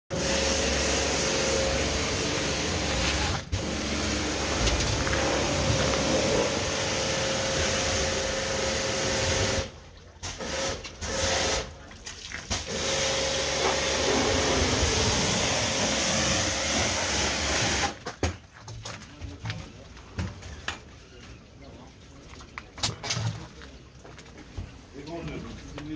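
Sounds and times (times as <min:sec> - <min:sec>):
water spraying under pressure: 0:00.1 - 0:18.0.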